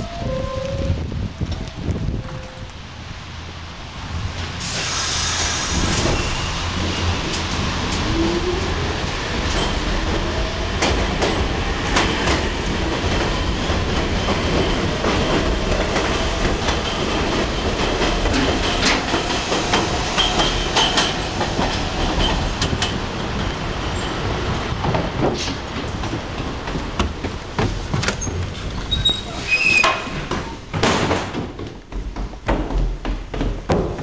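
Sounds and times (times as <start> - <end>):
subway train rumbling: 0.0 - 34.0
wheels clacking over rail joints: 5.8 - 34.0
wheel squeal: 28.2 - 30.2.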